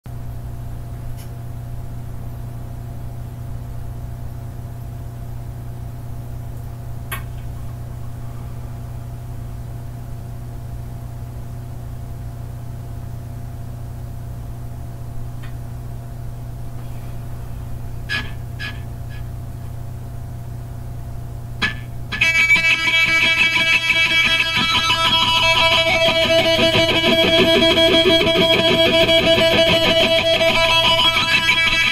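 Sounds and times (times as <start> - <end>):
guitar amplifier hum and hiss: 0.1 - 31.9
guitar string noise: 21.6 - 31.9.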